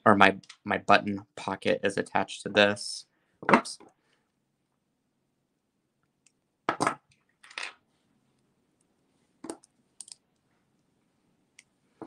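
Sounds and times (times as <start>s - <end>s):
pliers and metal pieces clicking: 9.5s - 10.2s.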